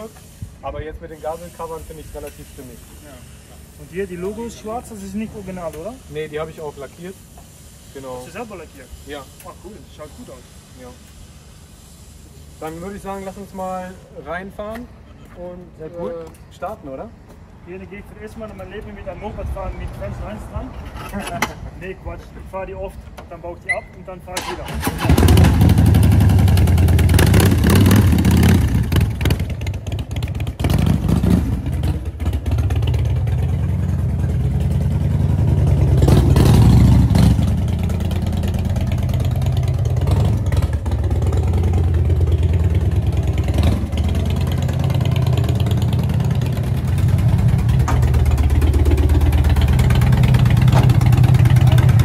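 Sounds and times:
motorcycle engine revving: 24.7 - 52.0.

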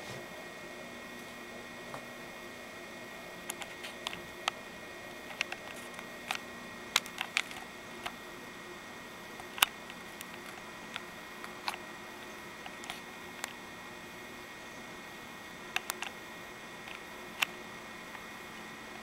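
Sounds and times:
computer hum and whine: 0.0 - 19.0
sharp clicks: 15.7 - 16.2.

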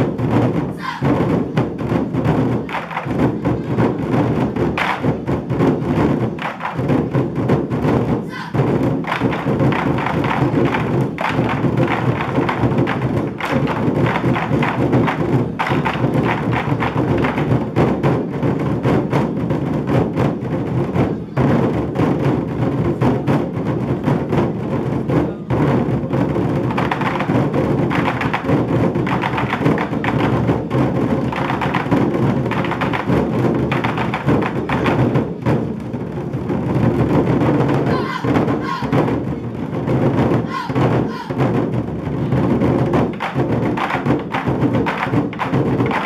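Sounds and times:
drum ensemble playing: 0.0 - 46.0.

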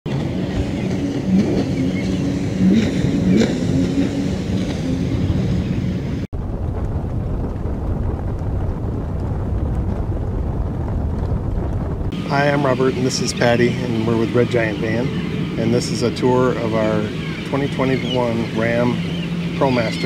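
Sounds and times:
motorboat engine running: 0.1 - 7.0, 11.7 - 20.0
wind rumble on microphone: 0.1 - 20.0.

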